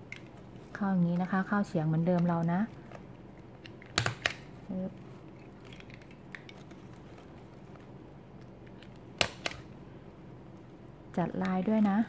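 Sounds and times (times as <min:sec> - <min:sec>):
stapler clicks: 0:03.6 - 0:04.4.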